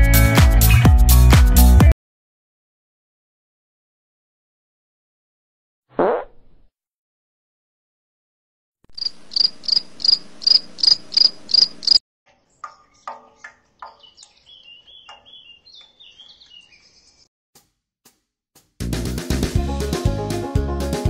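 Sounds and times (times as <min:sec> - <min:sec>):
cricket chirping: 0:08.9 - 0:12.0.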